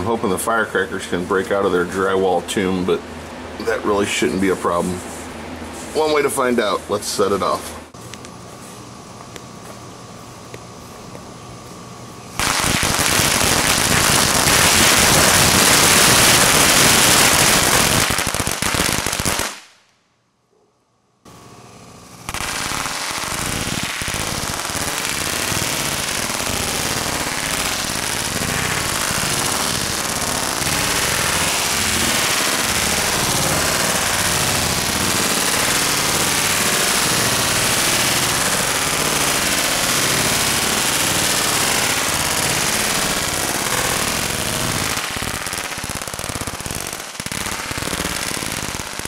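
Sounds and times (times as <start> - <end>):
firecrackers banging: 12.4 - 19.7, 22.2 - 49.0.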